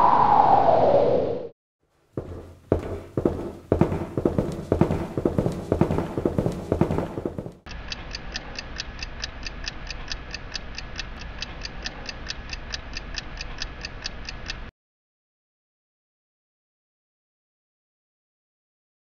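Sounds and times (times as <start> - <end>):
shoes clicking on hard floor: 2.0 - 7.7
clock ticking fast: 2.3 - 14.7.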